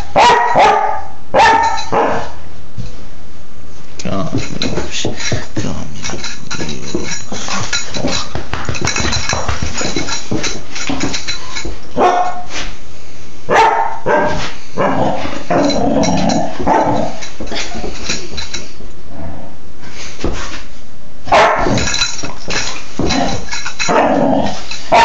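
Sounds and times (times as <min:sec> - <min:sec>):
puppy barking: 0:00.2 - 0:02.3, 0:12.0 - 0:12.5, 0:13.5 - 0:15.8, 0:21.3 - 0:21.8
scuffling and knocking: 0:04.2 - 0:12.8, 0:14.2 - 0:18.7, 0:21.4 - 0:25.0.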